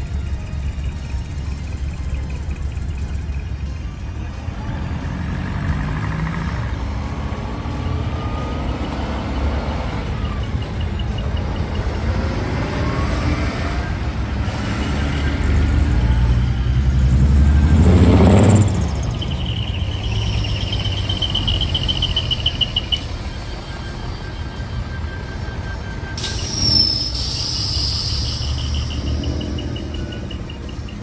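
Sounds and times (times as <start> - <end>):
truck diesel engines rumbling: 0.0 - 31.0
high rapidly pulsing beep: 7.8 - 31.0.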